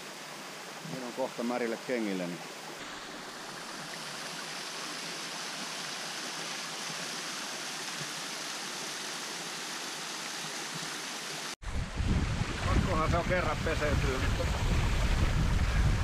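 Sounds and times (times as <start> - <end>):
small waterfall splashing on rocks: 0.0 - 11.6.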